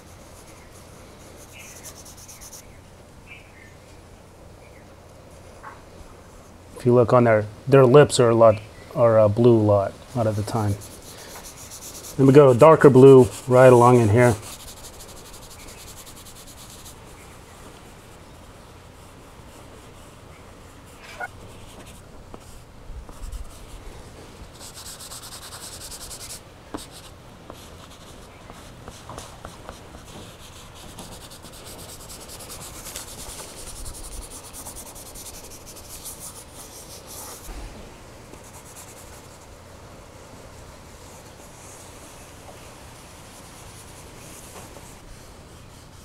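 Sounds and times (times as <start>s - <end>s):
chalk pastel scratching paper: 0.0s - 2.6s, 10.2s - 17.3s, 24.5s - 37.5s, 38.3s - 39.6s, 41.0s - 46.0s.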